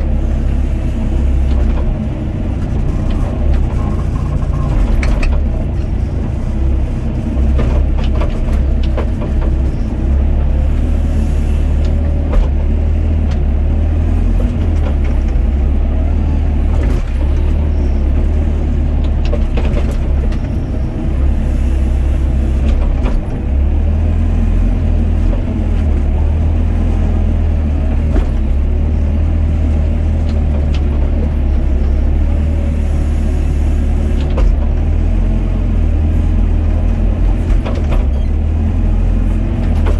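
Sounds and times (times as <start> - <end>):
excavator diesel engine running: 0.0 - 39.9
excavator bucket clunks: 19.0 - 20.6, 36.9 - 38.4.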